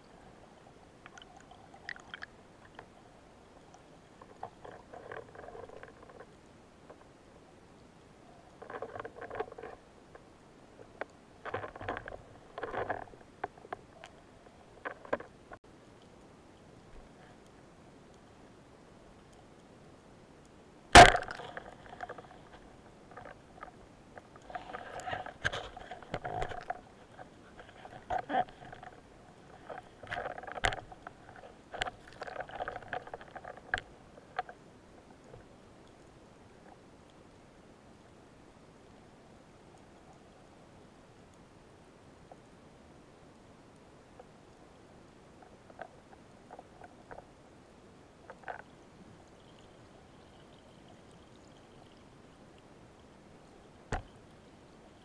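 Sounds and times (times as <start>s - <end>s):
underwater crackling and clicks: 1.0s - 3.0s, 3.6s - 7.2s, 7.8s - 18.6s, 21.0s - 37.4s, 45.3s - 47.4s, 48.2s - 53.1s, 53.9s - 55.0s.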